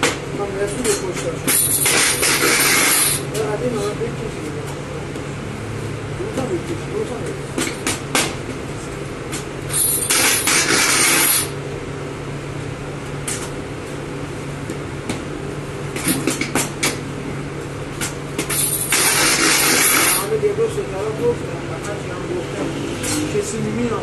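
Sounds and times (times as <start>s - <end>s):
steady machine hum: 0.0s - 24.0s
loud bursts of hissing: 9.7s - 11.6s, 18.5s - 20.3s.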